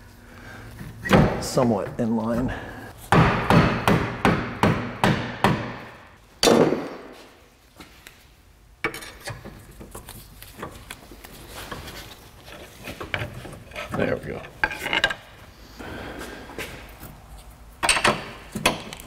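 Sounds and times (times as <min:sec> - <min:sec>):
tools clinking and scraping: 0:11.6 - 0:15.3.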